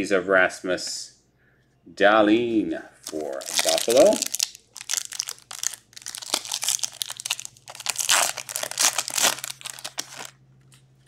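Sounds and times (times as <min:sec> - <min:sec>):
foil wrapper crinkling and tearing: 0:03.0 - 0:10.4.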